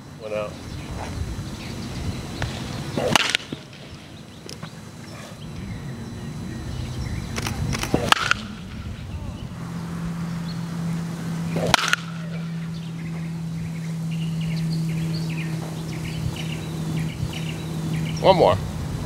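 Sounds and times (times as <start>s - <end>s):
birds chirping: 0.0s - 19.0s
steady low hum: 0.0s - 19.0s
baseball bat hitting ball: 3.0s - 4.0s, 7.8s - 9.0s, 11.5s - 13.2s.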